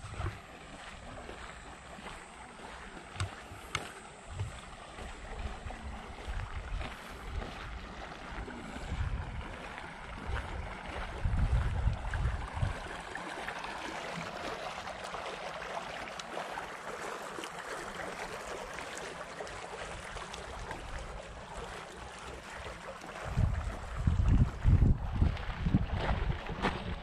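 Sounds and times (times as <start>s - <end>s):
fountain water splashing: 0.0s - 27.0s
wind buffeting microphone: 2.7s - 13.0s, 23.2s - 27.0s.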